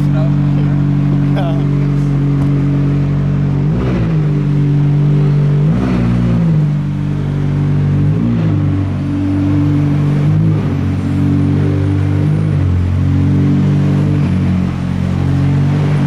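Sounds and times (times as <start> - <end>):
car engine idling: 0.0 - 16.0
engine revving: 0.0 - 16.0.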